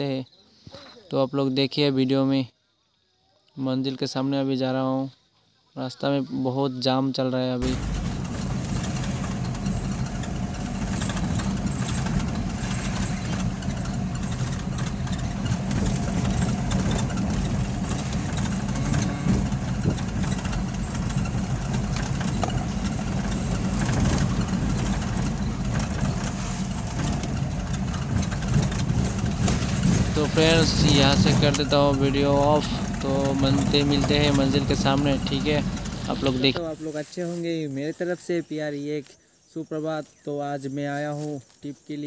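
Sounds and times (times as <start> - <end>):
engine running inside cab: 7.6 - 36.7
road noise: 7.6 - 38.7.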